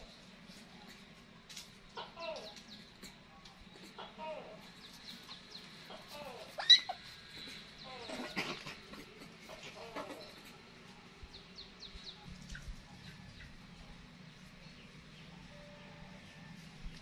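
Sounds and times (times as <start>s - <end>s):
faint background hum: 0.0s - 17.0s
animal squealing call: 6.4s - 7.1s.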